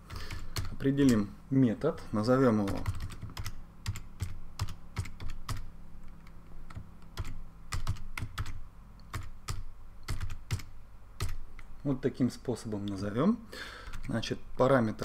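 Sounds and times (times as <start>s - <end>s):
keyboard typing: 0.0s - 1.3s, 2.6s - 11.7s, 13.8s - 14.2s
low steady hum: 0.0s - 15.0s.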